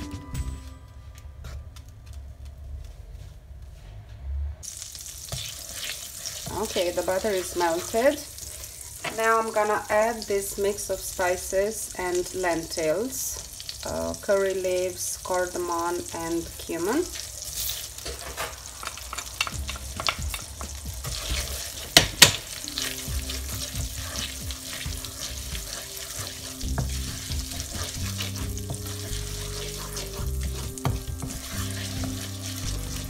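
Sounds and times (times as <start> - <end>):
spices sizzling in butter: 4.6 - 33.0
wooden spatula stirring: 5.0 - 9.9, 17.0 - 33.0.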